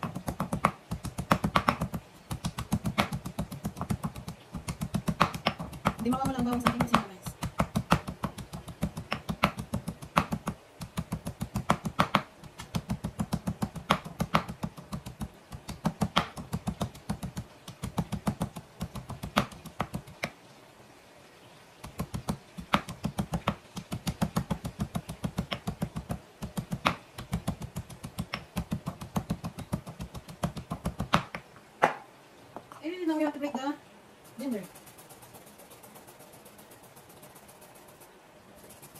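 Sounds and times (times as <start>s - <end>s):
pestle pounding in stone mortar: 0.0s - 20.2s, 21.8s - 32.0s.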